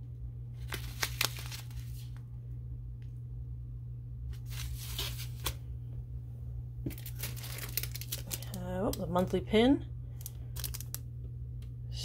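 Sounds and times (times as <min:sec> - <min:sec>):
steady low hum: 0:00.0 - 0:12.0
tea pouch crinkling: 0:00.6 - 0:02.2, 0:06.9 - 0:08.6, 0:10.2 - 0:11.0.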